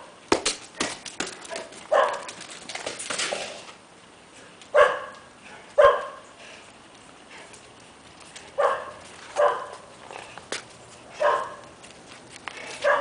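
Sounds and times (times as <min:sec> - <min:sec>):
dog barking: 0:01.9 - 0:02.3, 0:04.7 - 0:06.2, 0:08.6 - 0:09.9, 0:11.2 - 0:11.7.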